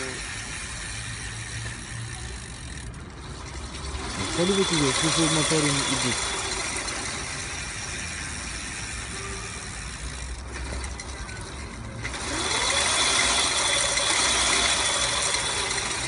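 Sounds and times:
electric bicycle motor running: 0.0s - 16.0s
ratcheting gear clatter: 0.0s - 16.0s
rising motor whine: 11.8s - 16.0s.

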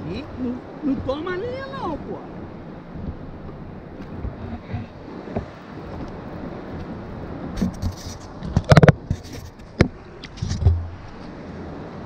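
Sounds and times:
water noise: 0.0s - 12.0s
wind: 0.0s - 12.0s
dull thump: 2.9s - 6.2s, 7.5s - 11.2s
sharp knocks and clatters: 7.6s - 10.9s.

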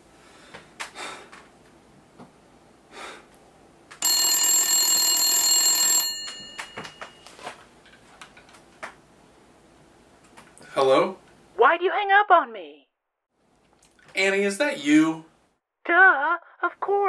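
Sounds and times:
telephone bell ringing: 4.0s - 7.5s.

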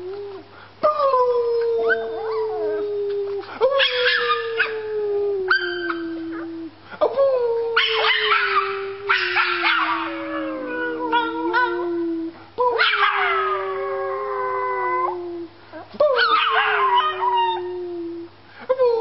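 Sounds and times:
puppy howling: 1.1s - 4.9s, 7.8s - 12.0s, 12.8s - 15.2s, 16.1s - 17.8s.

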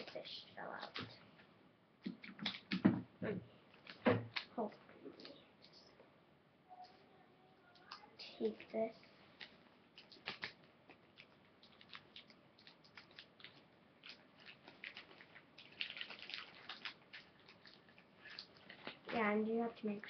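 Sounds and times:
plastic bag crinkling: 7.8s - 19.5s
sticky tape being handled: 9.4s - 19.2s.

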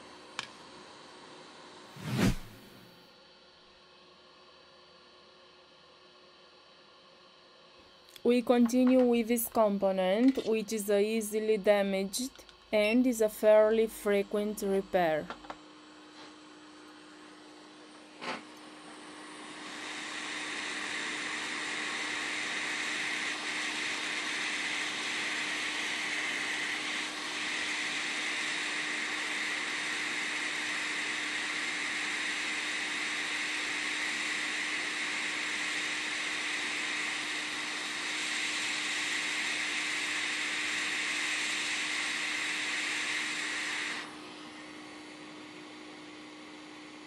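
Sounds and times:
hot air station hissing: 18.2s - 45.0s.

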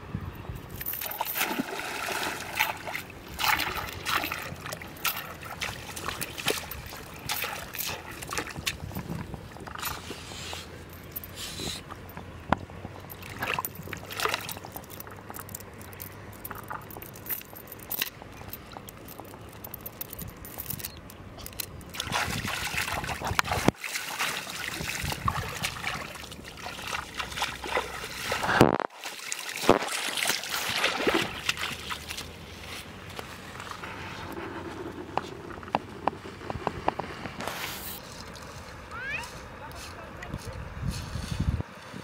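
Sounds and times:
river water sloshing: 0.7s - 42.0s
sharp splashes: 0.9s - 9.0s, 13.1s - 15.3s, 21.9s - 32.6s.

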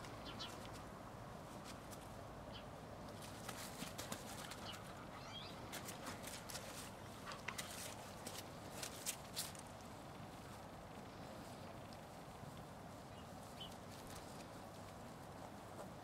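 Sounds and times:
dog paws rustling dry leaves: 3.2s - 16.0s
faint high chirps: 5.2s - 5.6s.

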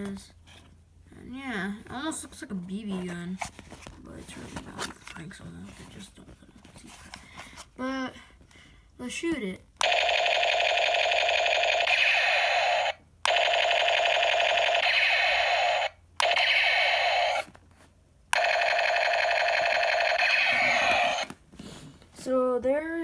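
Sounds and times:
toy machine-gun sound effect: 9.8s - 17.5s, 18.3s - 21.3s.

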